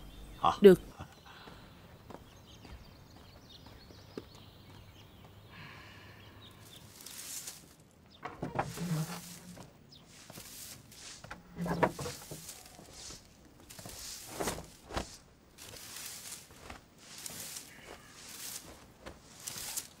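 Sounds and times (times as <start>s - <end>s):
broom sweeping brick paving: 6.6s - 7.9s, 8.5s - 20.0s.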